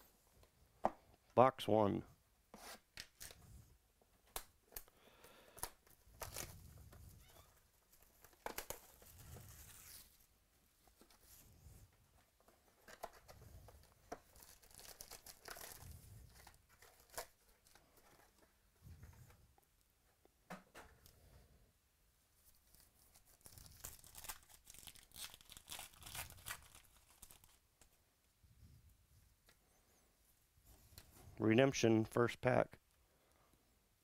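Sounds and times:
plastic wrap tearing and crinkling: 14.2s - 17.8s, 22.5s - 27.6s.

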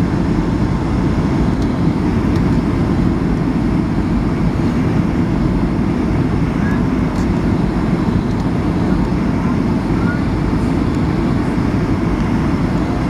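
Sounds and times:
jet engines roaring in cabin: 0.0s - 13.0s.

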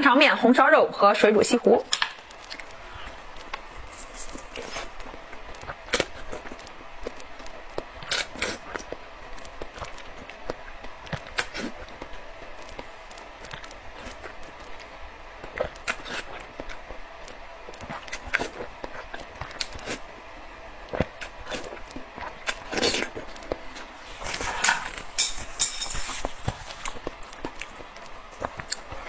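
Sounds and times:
wet chewing: 1.5s - 29.0s
crunchy fruit bites: 1.9s - 20.2s, 20.8s - 25.1s.

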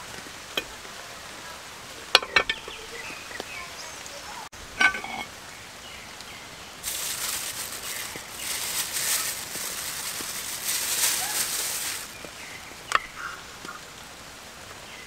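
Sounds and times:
rain hissing: 0.0s - 15.0s
metal griddle pan clinking: 2.1s - 2.8s, 4.8s - 5.3s
plastic bag rustling: 6.8s - 12.4s.

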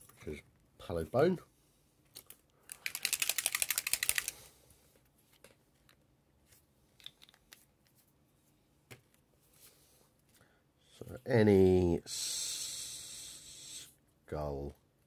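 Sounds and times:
mixing ball rattling in bottle: 2.7s - 4.3s.

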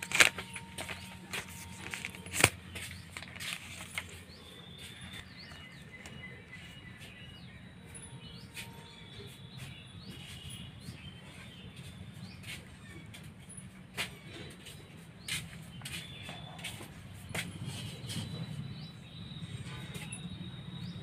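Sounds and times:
phone and plastic wrap rustling: 0.0s - 7.2s.

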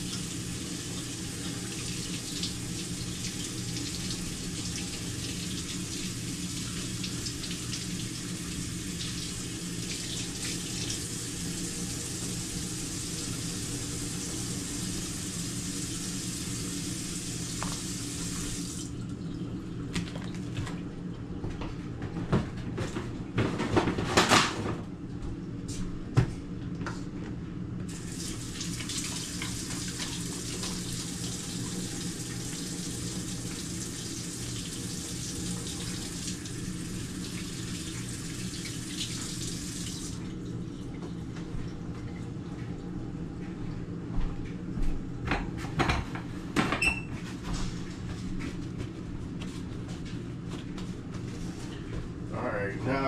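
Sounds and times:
faucet running into sink: 0.0s - 19.1s, 27.9s - 40.3s.

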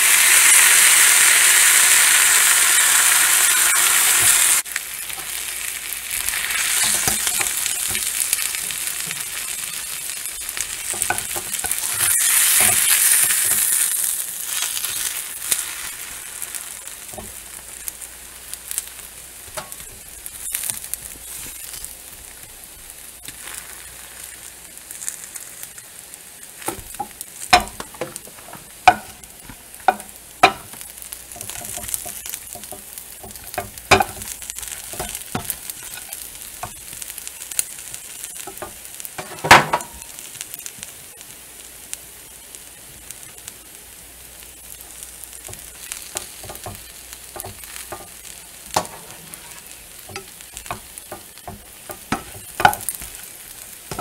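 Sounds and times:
food sizzling in a frying pan: 0.0s - 54.0s
utensil knocking against pan: 26.7s - 30.8s, 31.4s - 34.2s, 50.1s - 53.0s.

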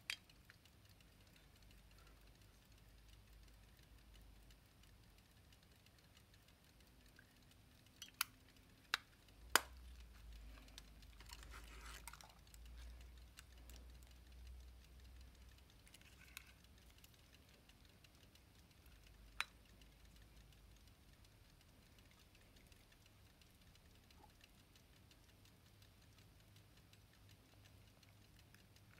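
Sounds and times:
faint handling rustle: 10.0s - 13.1s.

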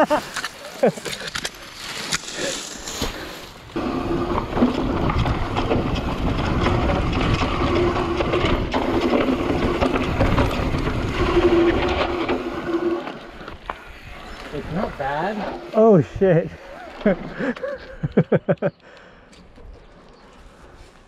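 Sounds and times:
bike rattles and knocks: 0.0s - 18.7s
tyre rumble on dirt: 2.7s - 15.7s.

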